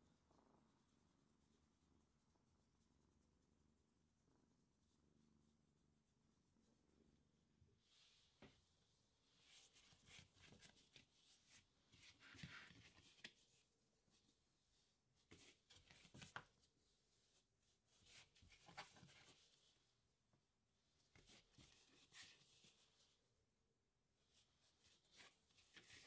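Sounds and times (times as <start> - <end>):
hands rustling and patting dough: 9.2 - 19.9, 24.3 - 26.0.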